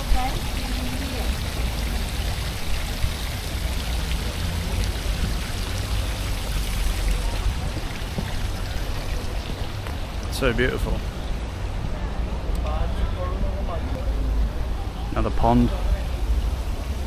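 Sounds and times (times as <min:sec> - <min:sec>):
water jets splashing into pond: 0:00.0 - 0:11.6.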